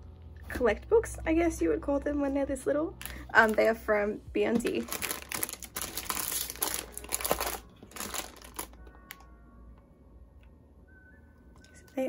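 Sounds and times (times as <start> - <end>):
plastic packaging crinkling: 4.6 - 9.2.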